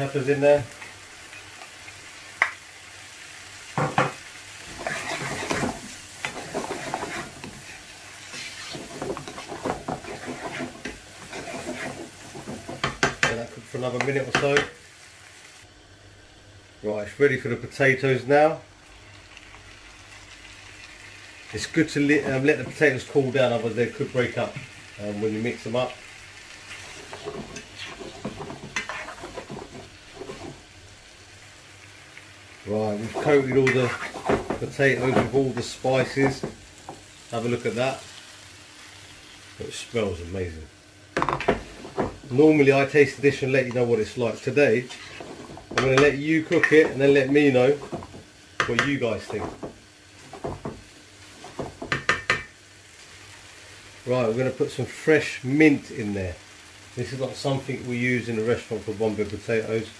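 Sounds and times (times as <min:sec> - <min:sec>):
food sizzling in frying pan: 0:00.0 - 0:59.9
spoon stirring and scraping pan: 0:03.5 - 0:14.8, 0:21.7 - 0:24.8, 0:25.5 - 0:30.7, 0:32.9 - 0:37.3, 0:41.2 - 0:53.9.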